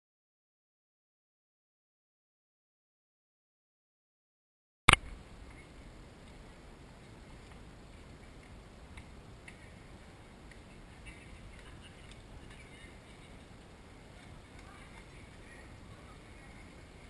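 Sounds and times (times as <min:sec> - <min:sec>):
outdoor background hiss: 0:04.9 - 0:17.0.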